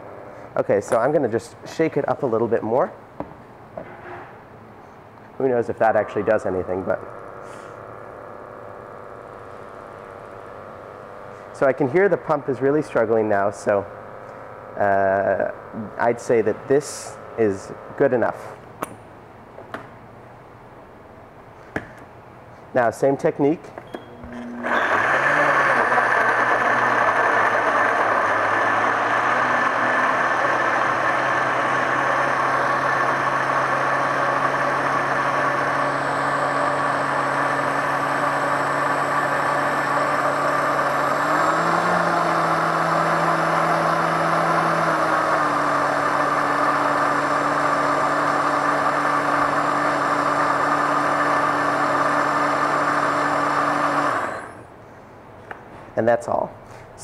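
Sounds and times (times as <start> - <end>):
blender motor running: 6.2 - 18.0, 24.2 - 54.7.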